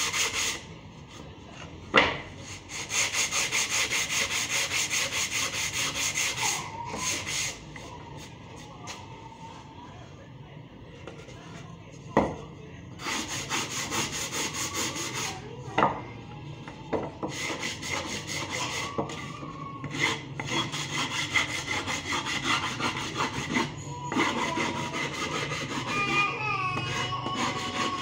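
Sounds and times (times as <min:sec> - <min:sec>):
hand-sanding wood strokes: 0:00.0 - 0:00.6, 0:02.4 - 0:07.6, 0:13.0 - 0:15.4, 0:17.3 - 0:18.9, 0:19.9 - 0:26.2, 0:26.9 - 0:28.0.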